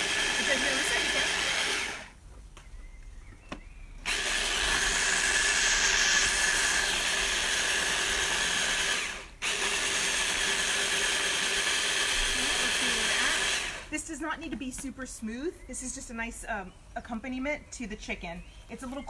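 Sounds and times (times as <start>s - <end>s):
electric chopper motor whirring: 0.0s - 2.2s, 4.0s - 13.9s.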